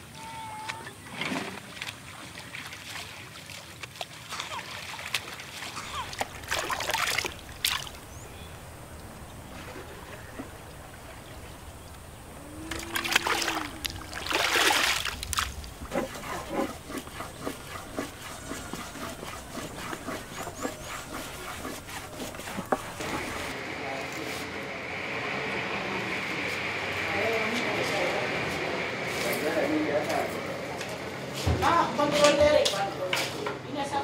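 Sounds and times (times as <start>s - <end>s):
water splashing and pouring: 1.1s - 23.5s.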